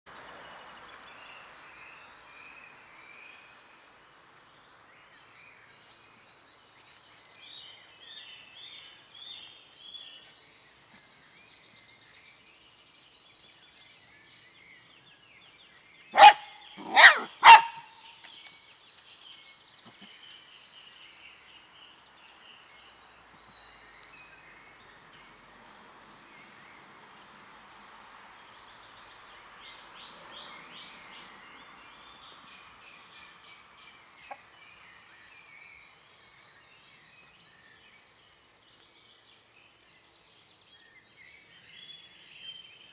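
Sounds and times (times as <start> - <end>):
birds chirping: 0.1 - 27.4, 28.2 - 42.9
dog barking: 16.2 - 18.0.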